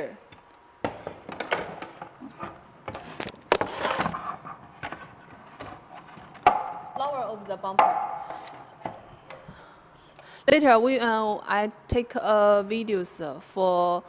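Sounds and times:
parts knocking and clattering: 0:00.8 - 0:09.6.

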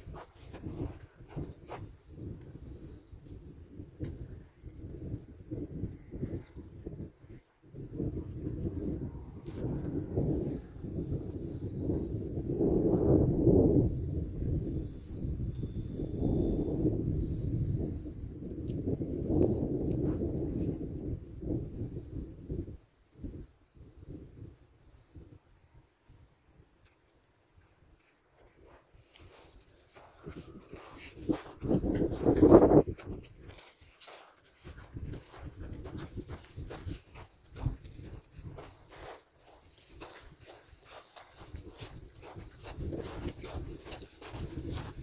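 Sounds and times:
footsteps on dry soil: 0:00.0 - 0:02.1, 0:28.2 - 0:45.0
insects chirring: 0:00.0 - 0:45.0.

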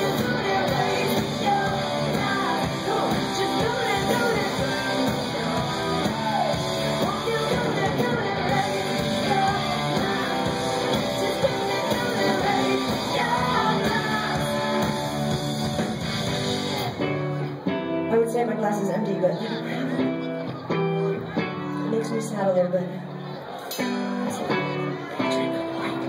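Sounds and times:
woman singing: 0:00.0 - 0:15.1
drums: 0:00.0 - 0:18.0
bass guitar: 0:00.0 - 0:18.2
electric guitars: 0:00.0 - 0:26.0.

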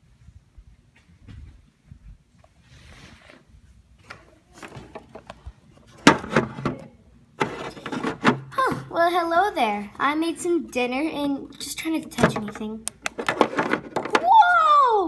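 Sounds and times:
plastic toys clattering: 0:07.4 - 0:08.6, 0:12.1 - 0:14.3.

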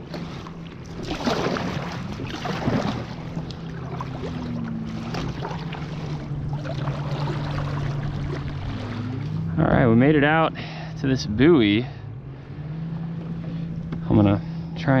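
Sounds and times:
paddle strokes splashing water: 0:00.0 - 0:09.6
steady low hum: 0:00.0 - 0:15.0.

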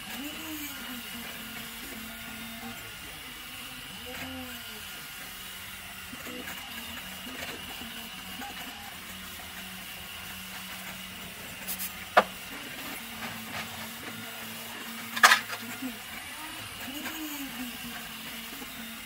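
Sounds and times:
steady background hum: 0:00.0 - 0:19.0
handling plastic parts: 0:15.1 - 0:15.8.

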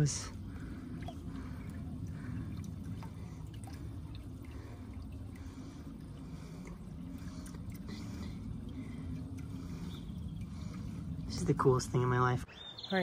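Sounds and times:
low steady rumble: 0:00.0 - 0:12.9
water trickling into pond: 0:00.0 - 0:13.0.

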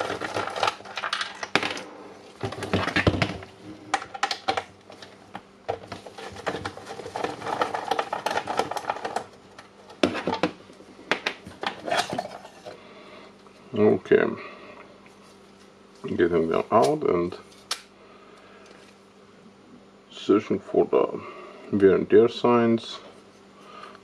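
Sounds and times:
plastic clatter: 0:05.7 - 0:12.5.

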